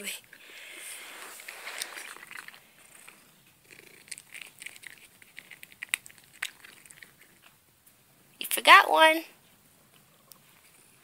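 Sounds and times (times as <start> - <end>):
cat licking and chewing: 1.1 - 7.6.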